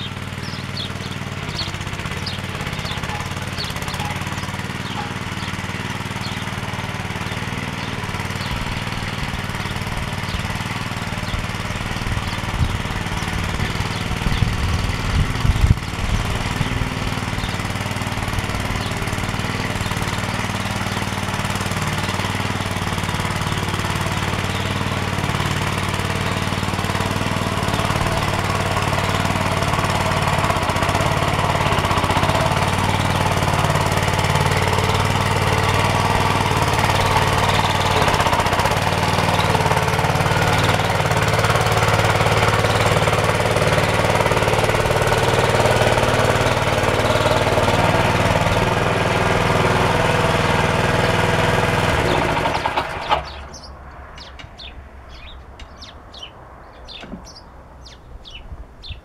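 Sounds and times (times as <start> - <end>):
small engine running: 0.0 - 56.2.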